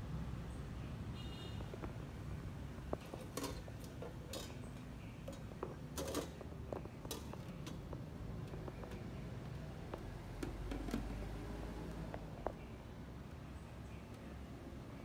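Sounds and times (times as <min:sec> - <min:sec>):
dishes and utensils clinking: 0:02.9 - 0:07.9.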